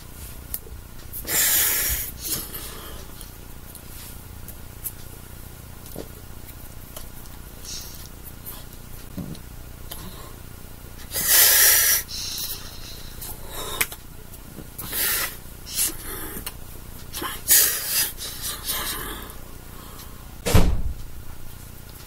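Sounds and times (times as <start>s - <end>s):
dull thump: 20.4s - 21.0s.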